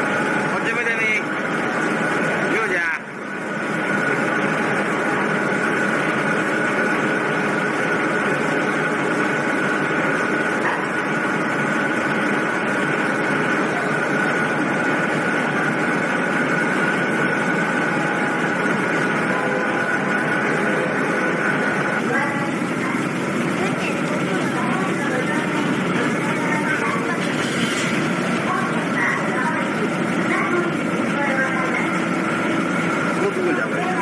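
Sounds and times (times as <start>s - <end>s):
ship engines droning: 0.0s - 34.0s
high whine: 11.9s - 34.0s.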